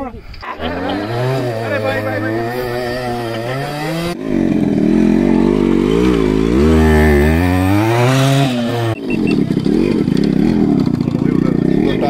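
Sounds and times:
vehicle engine revving: 0.5s - 12.0s.

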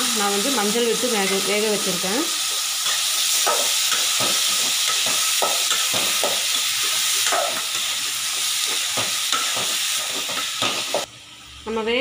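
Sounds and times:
food sizzling in a pan: 0.0s - 12.0s
metal spoon scraping a pan: 2.5s - 11.1s.

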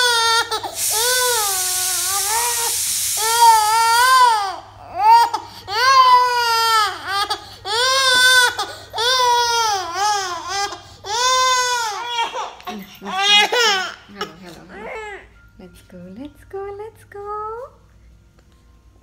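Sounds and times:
baby crying: 0.0s - 15.3s
pressure cooker whistle hissing: 0.8s - 3.7s.

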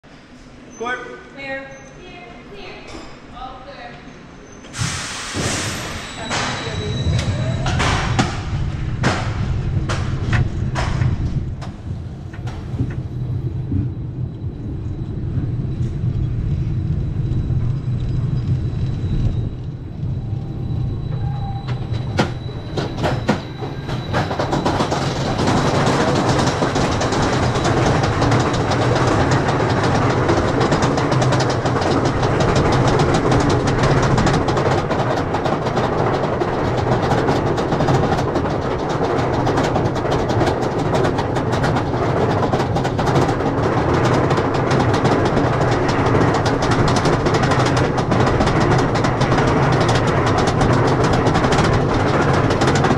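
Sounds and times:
roller coaster train rumbling: 0.0s - 52.9s
clacks on wooden track: 22.2s - 52.9s
lift chain rapid clatter: 22.4s - 52.9s.

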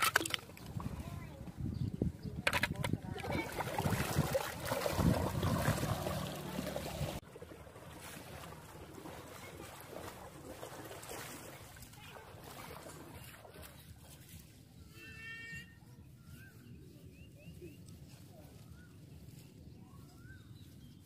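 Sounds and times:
water sloshing around wading legs: 2.5s - 14.9s
distant splashing: 3.2s - 13.7s.

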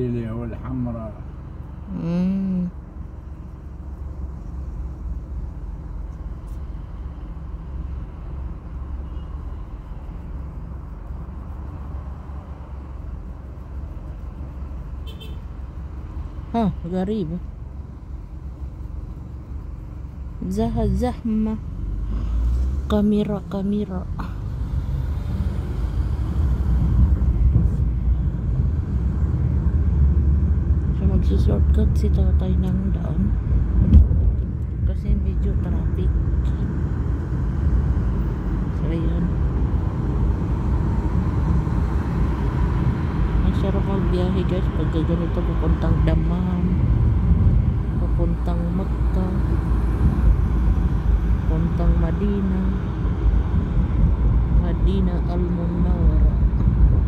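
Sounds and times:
car engine idling: 0.0s - 25.0s
car engine and road noise: 0.0s - 57.0s.

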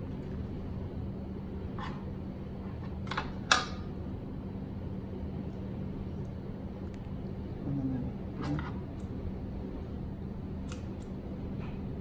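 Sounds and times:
steady low hum: 0.0s - 12.0s
scissors clicking: 10.6s - 11.2s.

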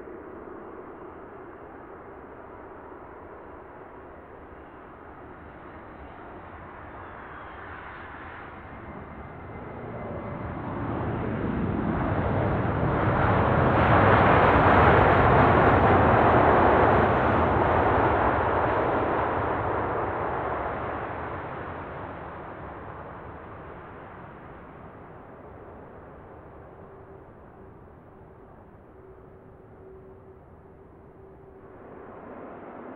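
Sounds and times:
jet airliner passing: 5.4s - 32.9s
high engine whine: 24.6s - 32.9s.

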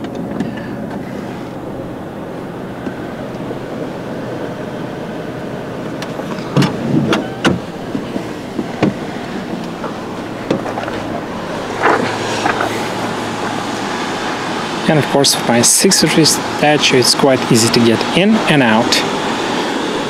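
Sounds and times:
steady low hum: 0.0s - 20.0s
car door latch clicks and knocks: 6.5s - 9.0s.

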